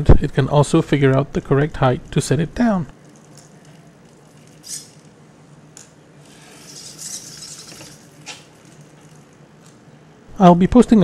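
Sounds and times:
steady low hum: 0.0 - 11.0
robot arm servo whir: 3.3 - 5.2, 6.2 - 9.2
spool sliding hiss: 6.2 - 8.8.

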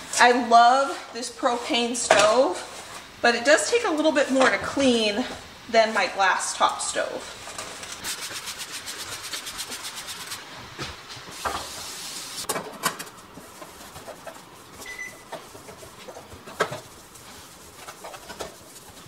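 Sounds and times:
cloth scrubbing a metal stovetop: 7.9 - 10.5, 13.4 - 19.0.

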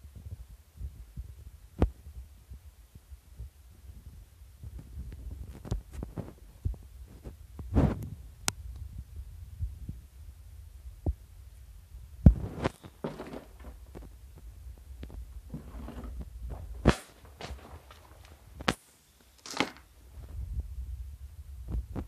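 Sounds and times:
handling thumps and rustles: 12.3 - 18.8, 19.4 - 20.4.

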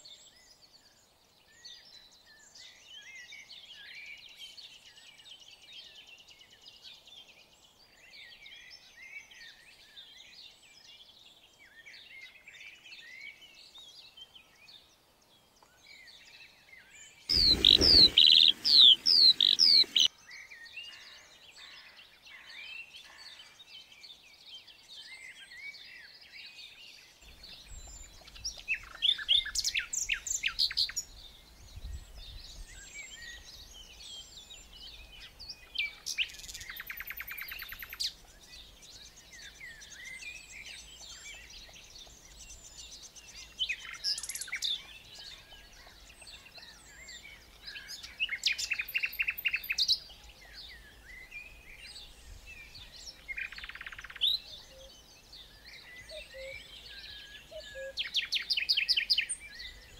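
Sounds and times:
songbirds singing: 0.0 - 59.9
rapid trilled birdsong: 17.1 - 20.1, 32.8 - 59.9.

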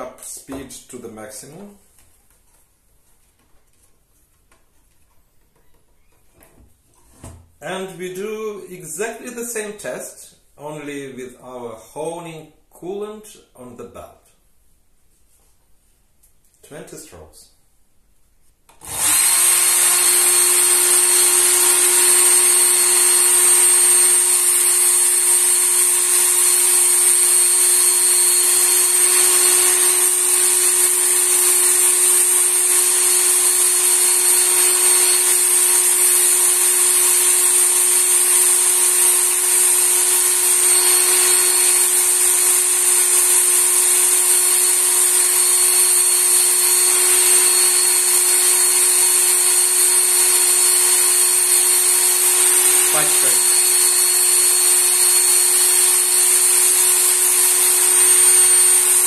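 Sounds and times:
belt sharpener motor whine: 18.8 - 59.0.

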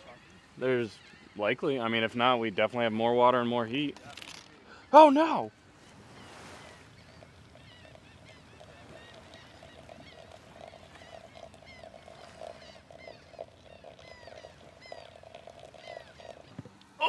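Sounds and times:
water trickling into coffee filter: 6.6 - 16.8.

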